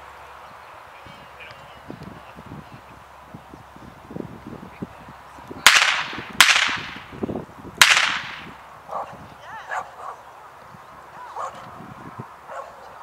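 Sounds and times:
gunshots with echo: 5.7 - 7.1, 7.8 - 8.5.

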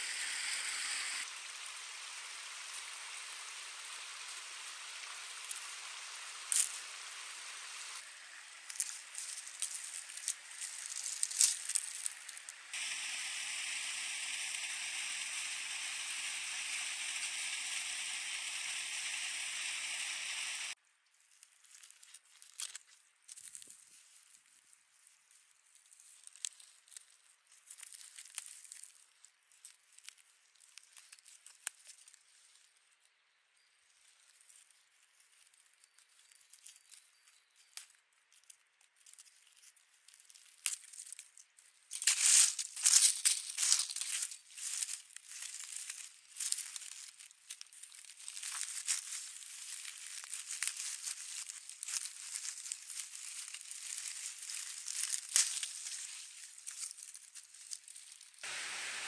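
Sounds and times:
plants rustling and tearing: 8.6 - 12.8, 21.2 - 32.7, 37.6 - 58.4.

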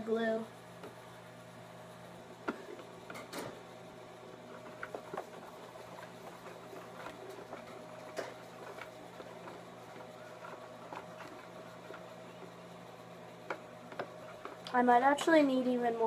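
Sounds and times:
low steady hum: 0.0 - 16.0
utensil scraping in a bowl: 4.4 - 12.5.

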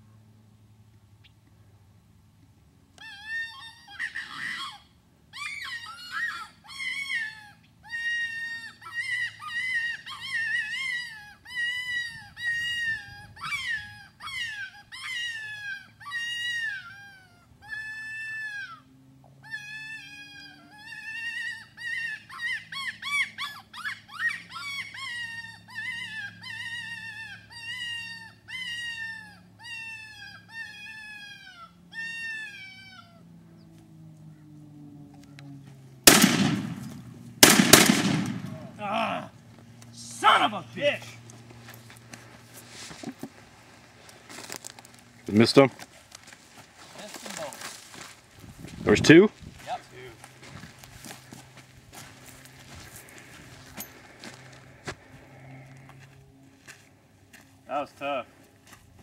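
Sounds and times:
predator call distress cries: 3.0 - 33.6, 36.1 - 41.2.

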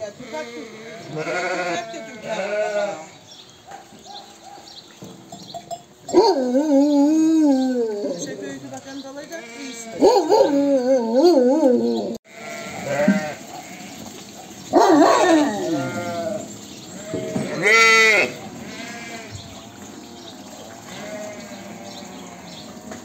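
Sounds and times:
sheep bleating: 0.0 - 3.2, 9.2 - 10.1, 12.3 - 14.0, 15.2 - 19.4, 20.8 - 22.7.

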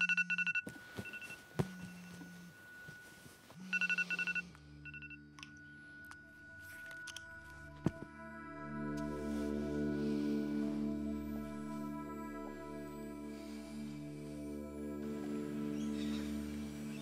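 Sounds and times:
phone alarm beeping: 0.0 - 5.3
soft sustained music tones: 0.0 - 17.0
phone vibration buzzing: 3.6 - 5.2.

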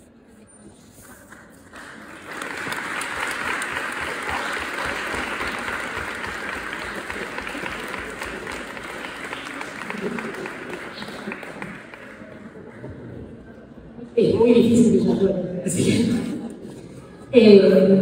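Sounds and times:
audience applauding: 1.3 - 13.5.

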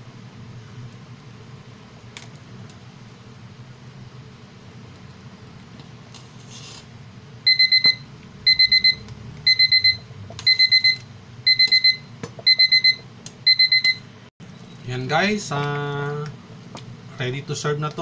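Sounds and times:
steady low hum: 0.0 - 18.0
kitchen timer beeping: 7.4 - 14.1.

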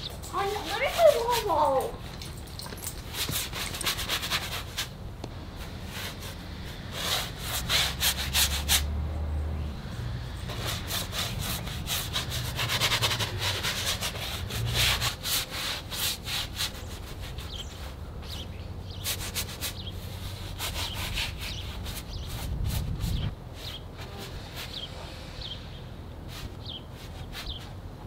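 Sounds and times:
paint rubbed onto canvas: 0.0 - 1.8, 10.5 - 18.0, 19.0 - 25.0.

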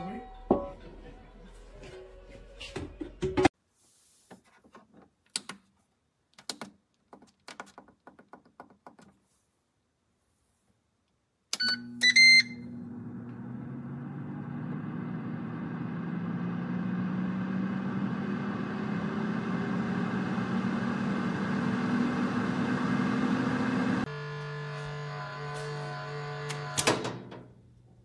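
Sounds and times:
air fryer beeping: 11.6 - 18.5, 19.1 - 27.2
air fryer fan humming: 11.8 - 27.6.

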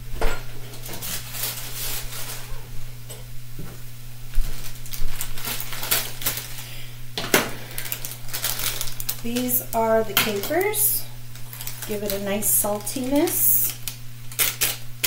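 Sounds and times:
steady low hum: 0.0 - 15.0
kitchen utensils knocking and clinking: 10.1 - 10.8.

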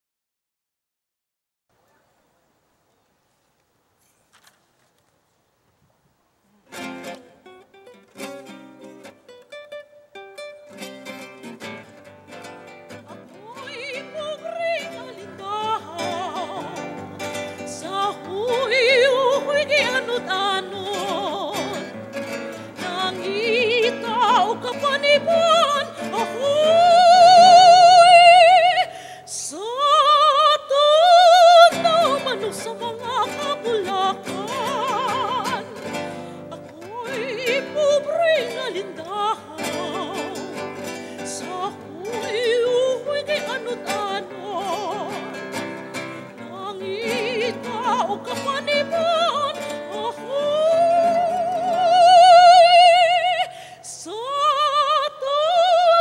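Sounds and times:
operatic singing with vibrato: 12.9 - 56.0.

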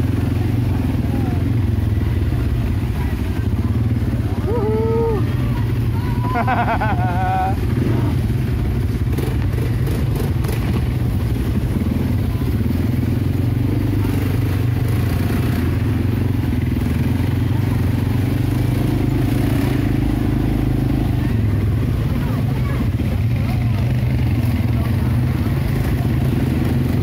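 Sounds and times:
quad bike engine running: 0.0 - 27.0.

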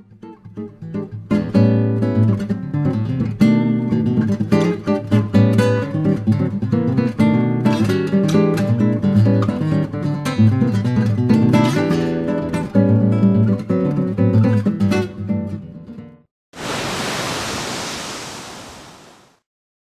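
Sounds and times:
acoustic guitar music: 0.0 - 16.1
hiss-like noise: 16.6 - 19.4.

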